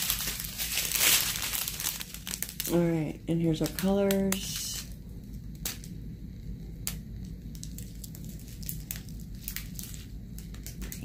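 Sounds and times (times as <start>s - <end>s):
plastic bags crinkling: 0.0s - 5.0s, 7.4s - 11.0s.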